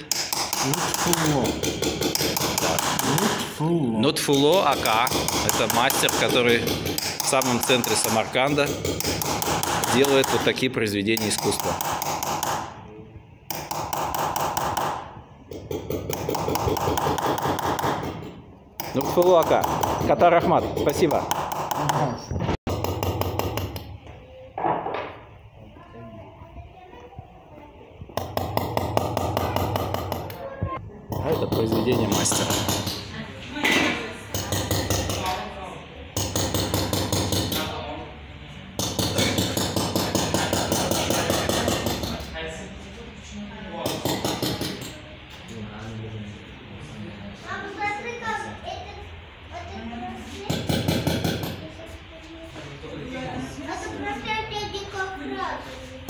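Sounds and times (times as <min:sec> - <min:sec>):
hammer tapping metal punch: 0:00.0 - 0:03.5, 0:04.3 - 0:12.8, 0:13.5 - 0:22.1, 0:22.7 - 0:24.0, 0:36.2 - 0:37.7.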